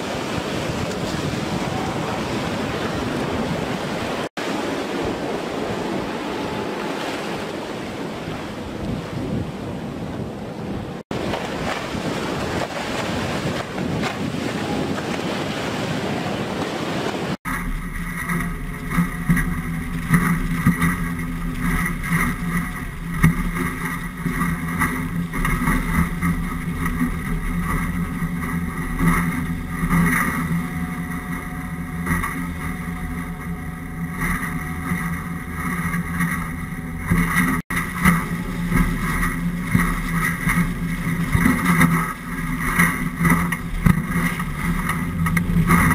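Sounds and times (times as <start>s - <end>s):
boat outboard engines droning: 0.0s - 45.9s
hull thumping on waves: 0.0s - 45.9s
rushing water: 0.0s - 45.9s
wind: 0.0s - 45.9s.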